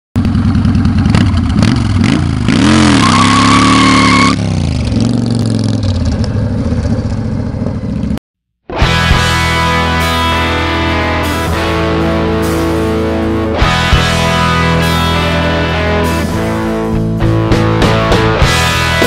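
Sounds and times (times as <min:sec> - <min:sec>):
motorcycle engine revving: 0:00.2 - 0:08.2
tyre squealing: 0:02.7 - 0:04.4.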